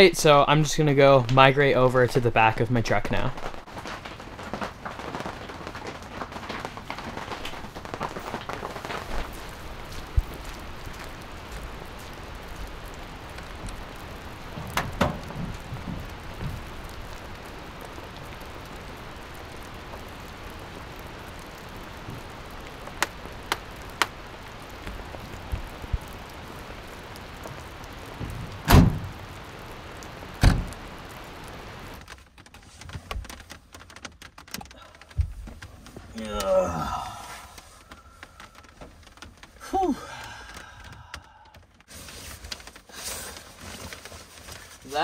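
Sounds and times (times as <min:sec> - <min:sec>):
steady rain falling: 0:00.0 - 0:45.0
knocks: 0:14.6 - 0:16.6
tailgate thuds: 0:14.6 - 0:16.6, 0:28.6 - 0:29.1, 0:30.4 - 0:30.7.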